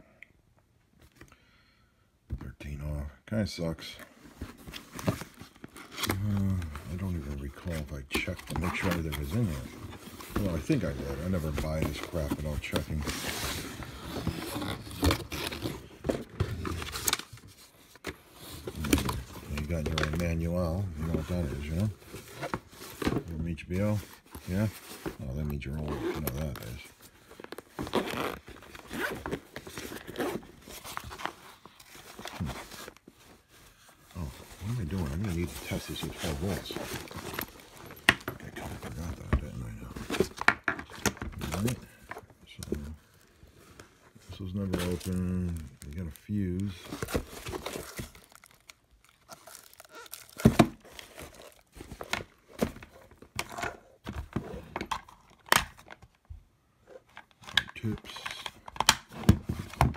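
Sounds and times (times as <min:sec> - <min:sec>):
plastic packaging crinkling: 0:44.3 - 0:52.4.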